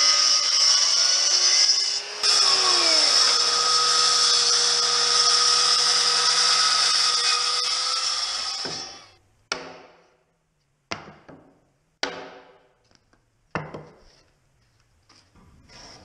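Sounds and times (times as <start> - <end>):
circular saw: 0.0 - 9.2
hammer striking timber beam: 9.5 - 10.0, 12.0 - 12.6.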